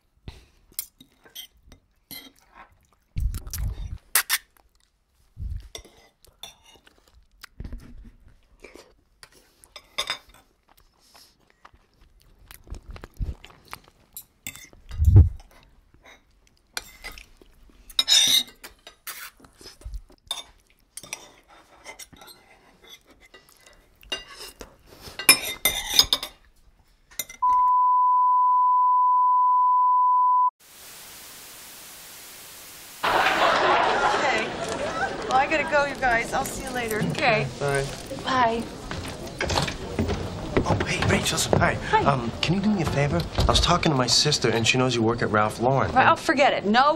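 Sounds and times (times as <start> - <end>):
cutlery clinking on a plate: 9.8 - 10.4, 17.9 - 19.1, 24.1 - 26.5
steady high beep: 27.4 - 30.5
static hiss: 30.6 - 33.7.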